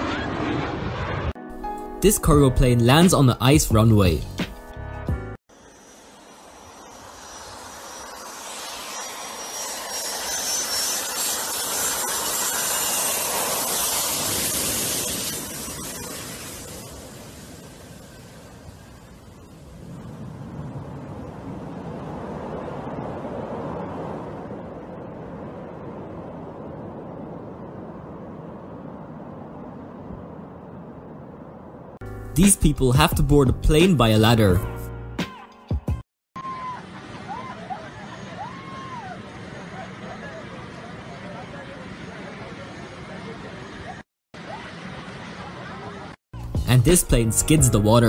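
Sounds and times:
jet engines rushing: 0.0 - 1.4, 5.5 - 32.0
thin high whine: 5.5 - 20.3.

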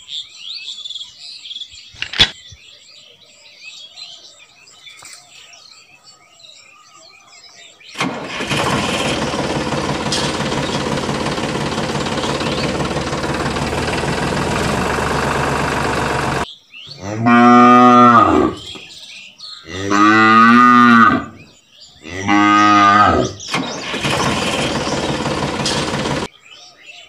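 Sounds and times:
tractor engine running: 8.0 - 16.5, 23.4 - 26.3
cow mooing: 17.0 - 18.7, 19.7 - 21.4, 22.0 - 23.4.

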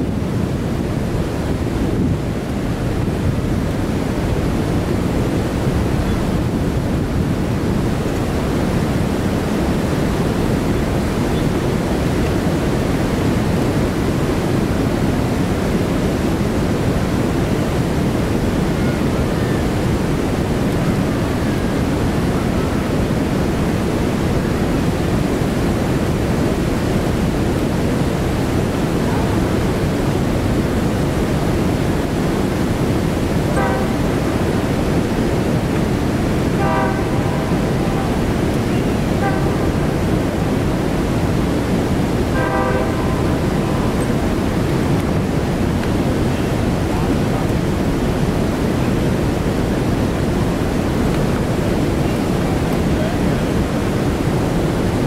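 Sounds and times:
whitewater rushing: 0.0 - 55.0.

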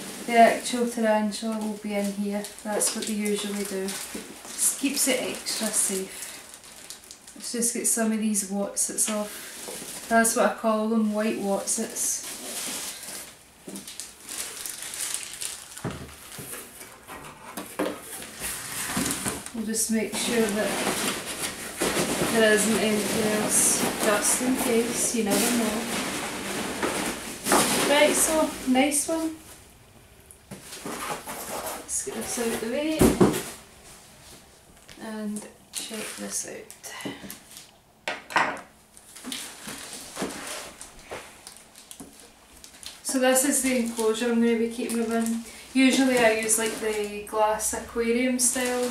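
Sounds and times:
packing peanuts rustling on plastic: 0.0 - 7.6, 9.0 - 17.2, 18.0 - 29.4, 35.7 - 37.7, 38.9 - 48.9.

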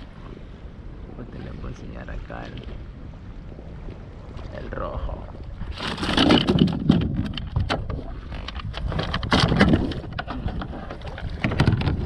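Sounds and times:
knocks and clatter in plastic kayak: 5.3 - 12.0
fish scuffling: 5.7 - 7.5.

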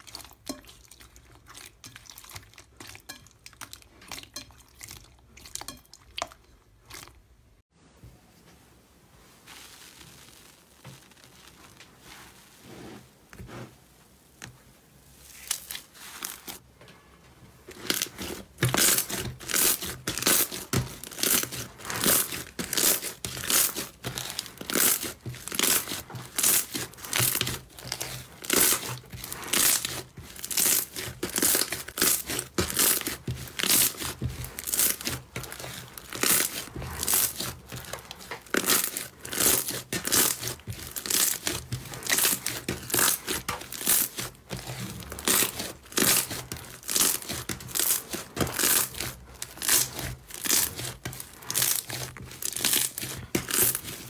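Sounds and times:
slime crackling and popping: 9.4 - 12.2, 17.7 - 54.0.

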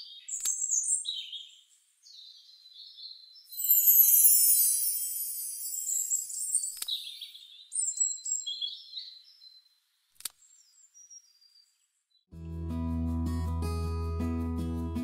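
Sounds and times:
bird chirping and twittering: 0.0 - 9.8, 10.4 - 12.1
sharp clicks: 10.2 - 10.4.

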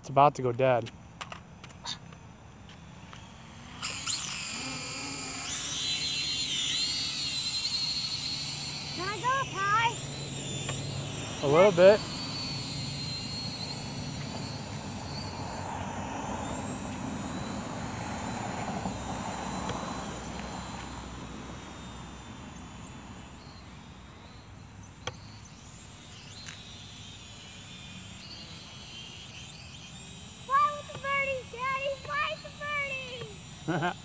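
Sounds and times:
outdoor hiss: 0.0 - 34.0
drone motors whining: 0.9 - 34.0.

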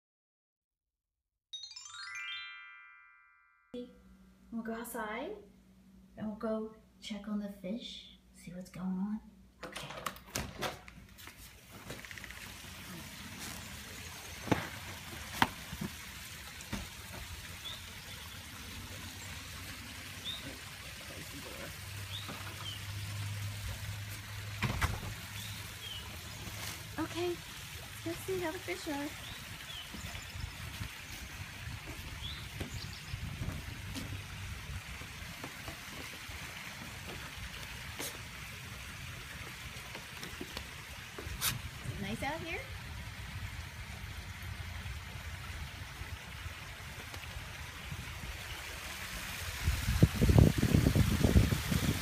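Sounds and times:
pond waterfall rushing: 11.6 - 52.0
wind buffeting microphone: 29.3 - 35.4, 49.4 - 52.0.

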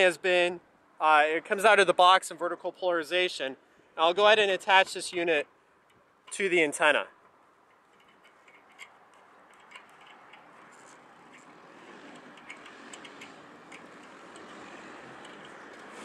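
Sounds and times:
small metallic clicks: 7.2 - 16.0.

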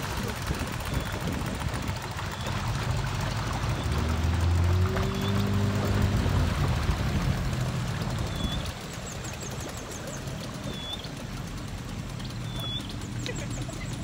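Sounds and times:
boat engine rumble: 0.0 - 14.0
river water: 0.0 - 14.0
faint bird chirps: 12.2 - 13.7.

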